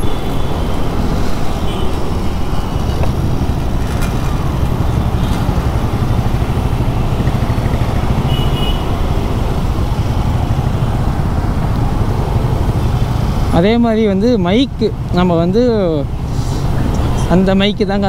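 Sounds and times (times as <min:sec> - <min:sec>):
scooter engine rumble: 0:00.0 - 0:13.0
surrounding traffic: 0:00.0 - 0:18.0.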